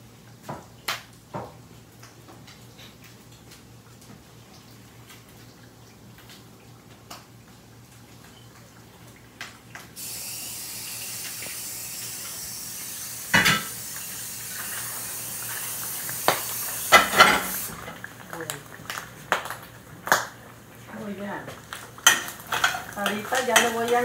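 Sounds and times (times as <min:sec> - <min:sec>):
faucet water running into sink: 0:07.9 - 0:19.2, 0:20.8 - 0:24.0
dishes clattering: 0:13.4 - 0:13.7, 0:16.9 - 0:17.6, 0:22.0 - 0:24.0.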